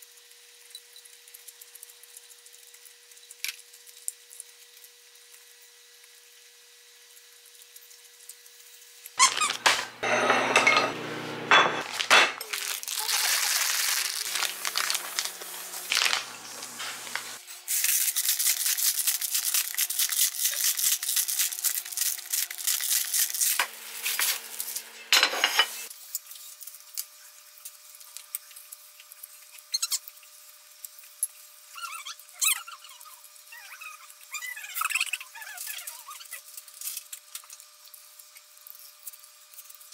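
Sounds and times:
plates and cutlery clinking: 0:09.2 - 0:12.5, 0:23.6 - 0:25.9.

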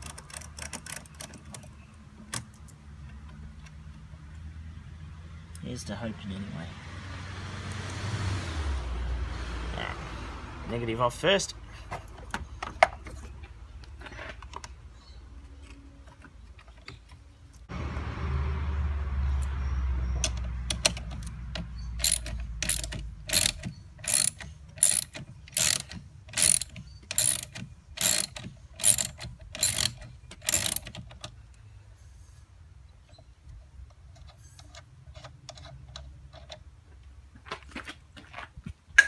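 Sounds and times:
ratchet wrench clicking: 0:22.0 - 0:31.0.

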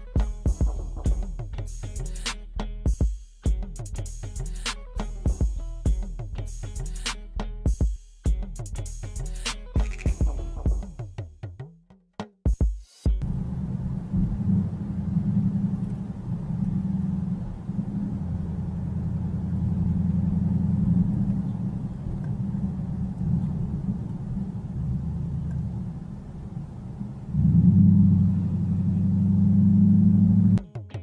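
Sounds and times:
car road and engine rumble: 0:13.2 - 0:30.6.

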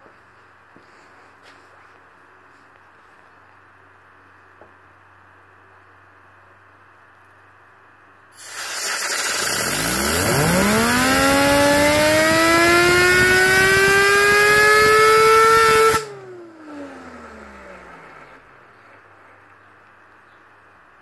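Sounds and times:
air blow gun hissing: 0:08.4 - 0:12.1
fidget spinner whine: 0:08.4 - 0:19.0.

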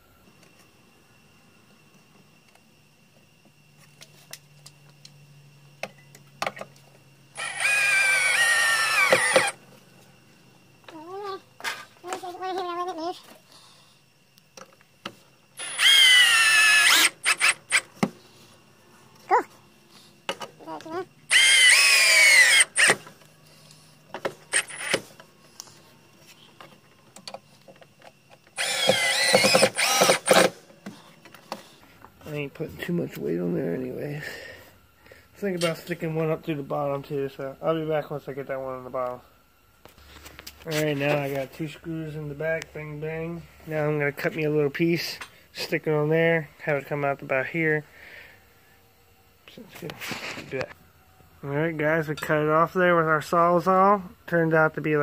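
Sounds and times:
cordless drill whining: 0:07.4 - 0:09.6, 0:15.6 - 0:17.9, 0:21.3 - 0:23.1, 0:24.5 - 0:25.0, 0:28.6 - 0:30.6
drill knocks and clicks: 0:07.4 - 0:09.6, 0:28.6 - 0:30.5.

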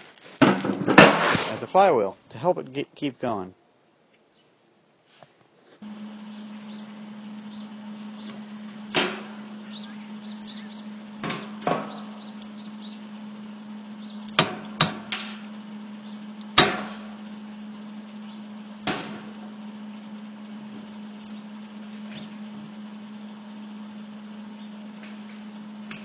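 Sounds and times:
steady low hum: 0:05.8 - 0:26.0.

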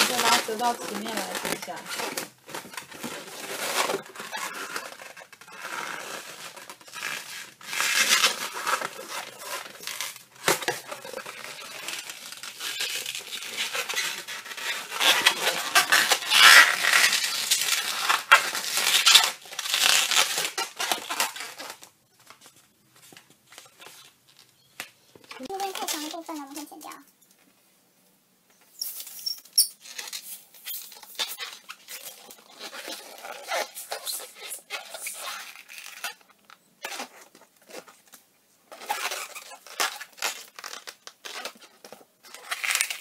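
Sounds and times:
balloon rubbing and crinkling: 0:00.0 - 0:27.0, 0:28.7 - 0:43.0.

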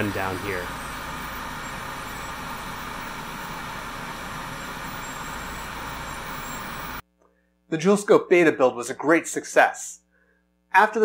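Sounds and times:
air hiss: 0:00.0 - 0:07.0
machine hum: 0:00.0 - 0:07.0.

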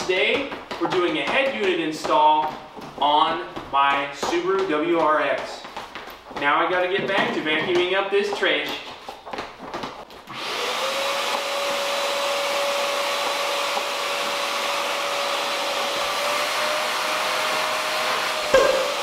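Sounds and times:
shop vacuum motor whine: 0:10.3 - 0:19.0
knocks: 0:18.5 - 0:19.0.

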